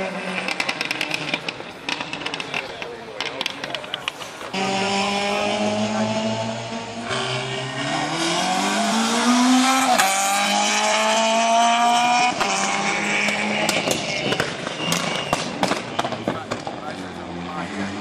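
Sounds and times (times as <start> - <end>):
rally car engine accelerating: 0.0 - 18.0
sharp engine pops: 13.6 - 16.8.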